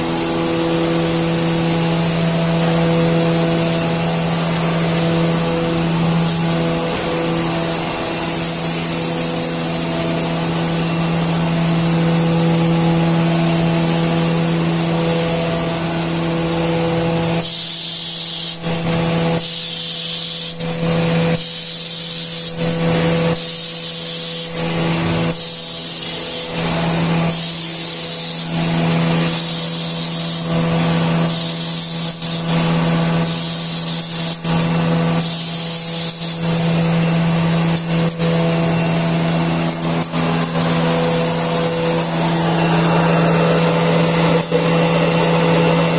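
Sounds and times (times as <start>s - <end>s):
packing machinery humming: 0.0s - 45.9s
pneumatic air hissing: 8.0s - 10.3s, 17.3s - 36.8s, 39.7s - 42.6s.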